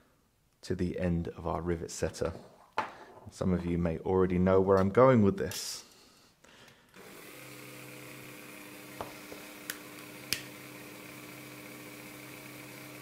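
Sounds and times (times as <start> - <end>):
rotary tool humming: 7.0 - 13.0.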